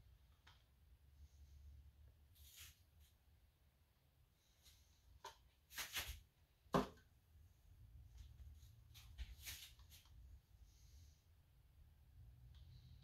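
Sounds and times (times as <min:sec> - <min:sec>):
quiet scuffs and rustles: 0:02.4 - 0:03.2, 0:05.6 - 0:06.3, 0:08.0 - 0:10.3
plastic cup knocking on table: 0:06.7 - 0:07.0.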